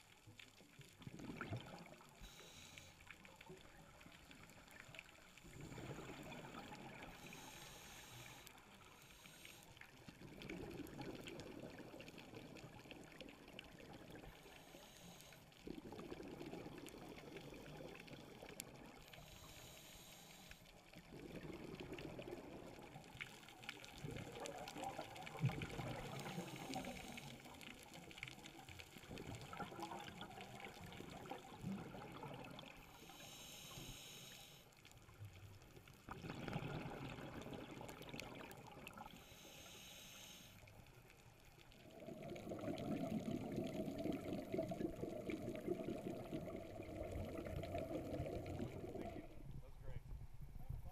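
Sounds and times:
exhaled bubbles gurgling underwater: 0:00.0 - 0:09.0, 0:09.8 - 0:19.8, 0:20.8 - 0:34.2, 0:35.0 - 0:39.8, 0:40.8 - 0:49.6
regulator inhalation hiss: 0:02.2 - 0:03.1, 0:07.1 - 0:09.8, 0:14.4 - 0:15.5, 0:19.1 - 0:20.7, 0:32.8 - 0:34.7, 0:39.1 - 0:40.8.

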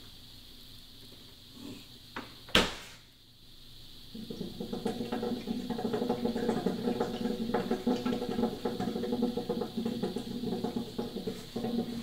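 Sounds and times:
refrigerator low hum: 0:00.0 - 0:12.0
refrigerator bubbling knocking: 0:04.1 - 0:12.0.

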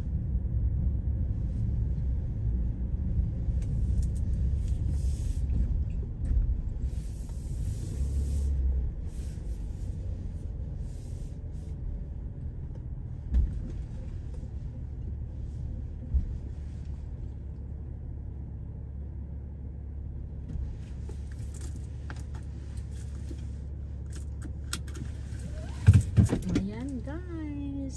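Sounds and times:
car interior rumble: 0:00.0 - 0:27.9
hiss: 0:06.9 - 0:09.9.

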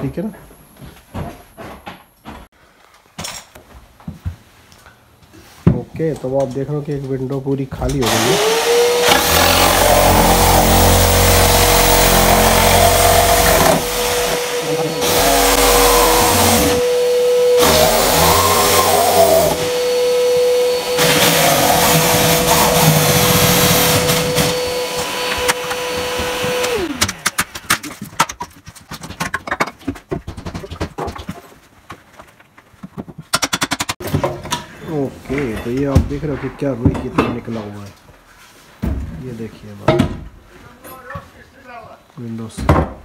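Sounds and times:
power tool high whine: 0:08.0 - 0:27.0
knocks and scrapes of prying: 0:25.4 - 0:37.7.

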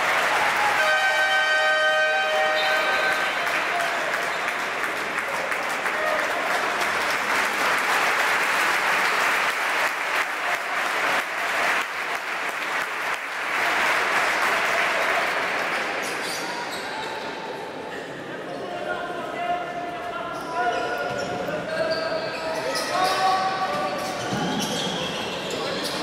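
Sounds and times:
crowd applauding: 0:00.0 - 0:01.6, 0:02.4 - 0:16.0.

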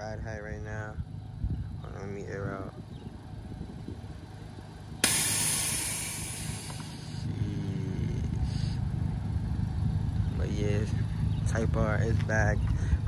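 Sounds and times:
air suspension hissing: 0:05.0 - 0:07.3.

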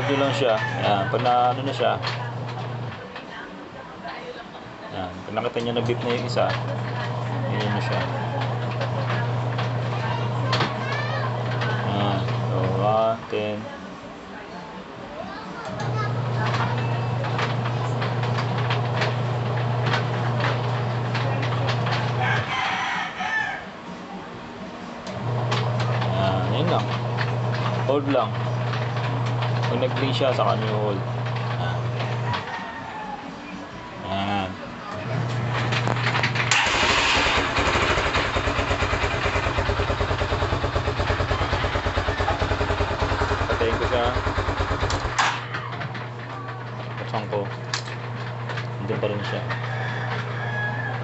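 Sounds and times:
rooster crowing: 0:00.0 - 0:01.2, 0:22.2 - 0:23.8, 0:32.2 - 0:33.6, 0:49.4 - 0:51.0
electric starter cranking: 0:00.0 - 0:03.0, 0:05.4 - 0:13.0, 0:15.7 - 0:22.5, 0:25.0 - 0:32.5, 0:35.1 - 0:51.0
motorcycle engine idling: 0:36.6 - 0:45.2.

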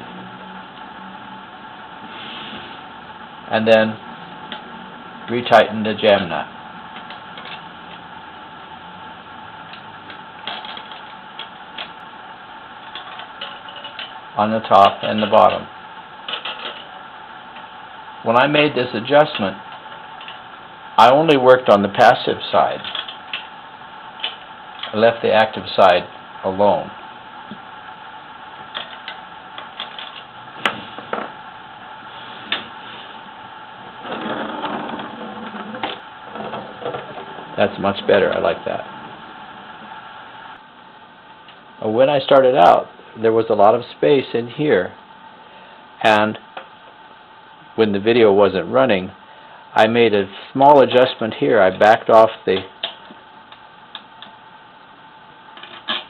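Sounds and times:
steady background hiss: 0:00.0 - 0:56.0
mechanical rattling: 0:12.8 - 0:14.2.

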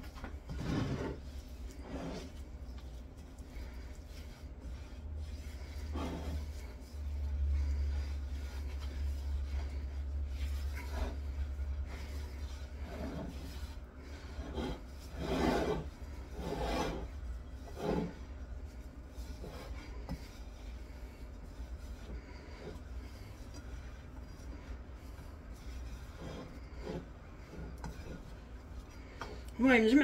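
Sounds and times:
hands rubbing dough in a bowl: 0:00.0 - 0:30.0
low steady hum: 0:00.0 - 0:30.0.

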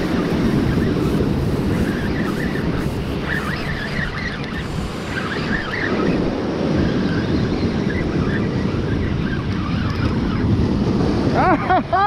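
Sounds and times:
surf washing over rocks: 0:00.0 - 0:07.0
wind buffeting microphone: 0:00.0 - 0:12.0.

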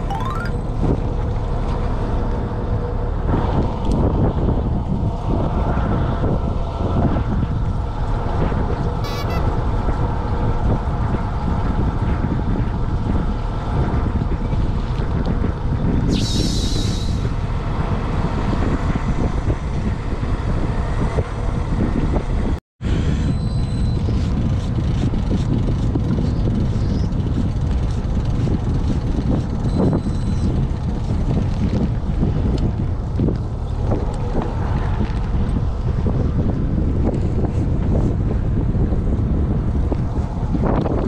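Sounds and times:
high-pitched sound effect: 0:00.0 - 0:00.8, 0:09.0 - 0:09.4
wind buffeting microphone: 0:00.6 - 0:41.0.

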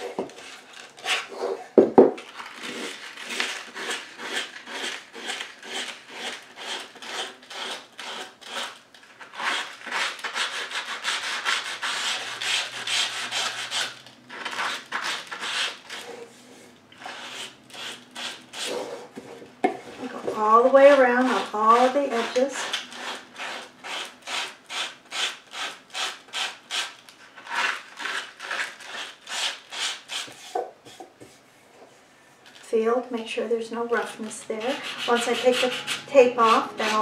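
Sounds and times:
sandpaper rubbing on wood: 0:09.3 - 0:13.9, 0:14.5 - 0:16.1, 0:17.0 - 0:19.1, 0:34.6 - 0:37.0.

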